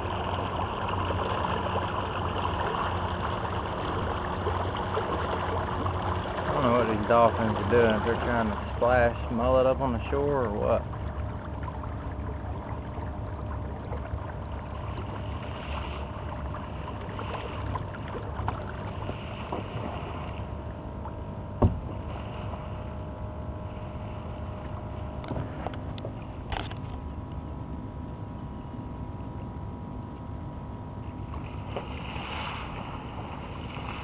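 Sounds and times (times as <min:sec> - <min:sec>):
water around boat: 0:00.0 - 0:34.0.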